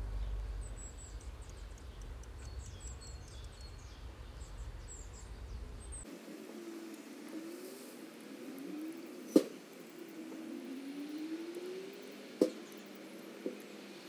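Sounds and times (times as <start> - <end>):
steady low rumble: 0.0 - 6.4
small birds chirping: 0.0 - 14.0.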